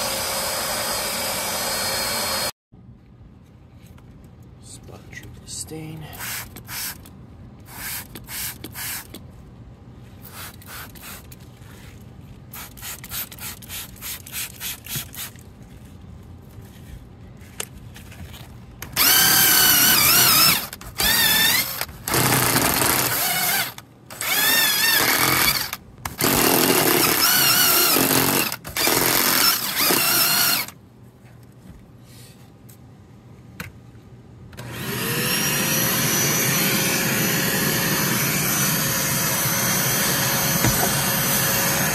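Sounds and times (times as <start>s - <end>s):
cordless drill brush spinning: 0.0s - 2.5s, 18.8s - 30.8s, 34.6s - 41.9s
vacuum motor whine: 34.6s - 41.9s.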